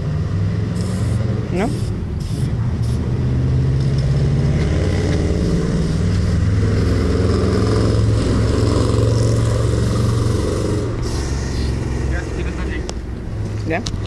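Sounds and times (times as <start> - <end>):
motor engine running: 4.5 - 12.8.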